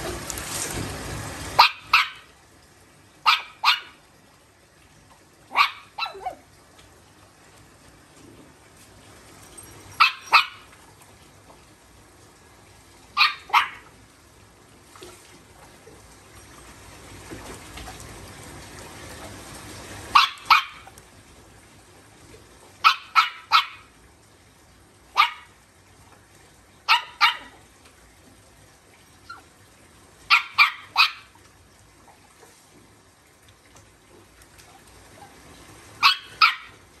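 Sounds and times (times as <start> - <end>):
small dogs barking: 1.6 - 2.3, 3.2 - 4.0, 5.5 - 6.4, 10.0 - 10.7, 13.2 - 13.9, 20.1 - 21.0, 22.8 - 23.9, 25.1 - 25.6, 26.8 - 27.6, 30.3 - 31.4, 36.0 - 36.8.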